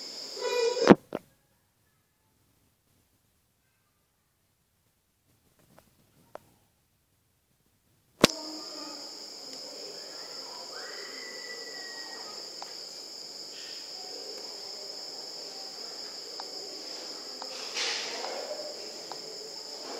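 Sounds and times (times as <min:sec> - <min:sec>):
high-pitched insect trill: 0:00.0 - 0:01.0, 0:08.2 - 0:19.9
faint clicks: 0:12.6 - 0:12.8, 0:17.4 - 0:17.6.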